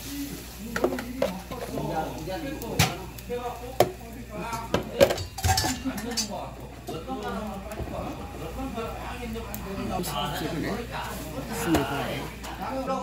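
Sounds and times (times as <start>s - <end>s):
spoon clinking against dishes: 3.8s - 7.0s.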